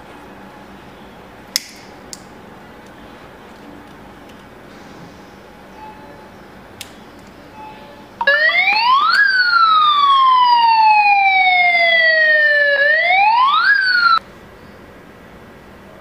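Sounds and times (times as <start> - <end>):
gas alarm siren: 8.2 - 14.2.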